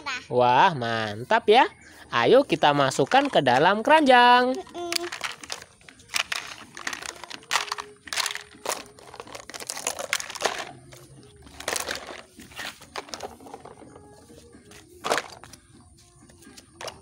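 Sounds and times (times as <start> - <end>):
plastic toys clacking and rattling: 2.6 - 14.1, 14.7 - 15.6, 16.6 - 17.0.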